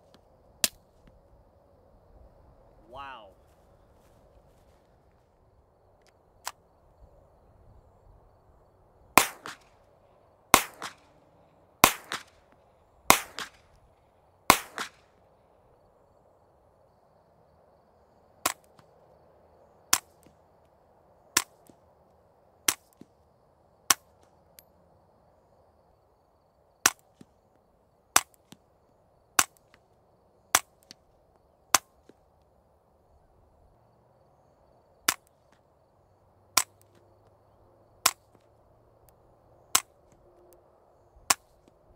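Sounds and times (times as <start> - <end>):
suppressed gunshots: 9.2 - 9.7, 10.5 - 11.0, 11.8 - 12.3, 13.1 - 13.6, 14.5 - 15.0
unsuppressed gunshots with echo: 9.2 - 9.7, 10.5 - 11.1, 11.8 - 12.4, 13.1 - 13.6, 14.5 - 15.0.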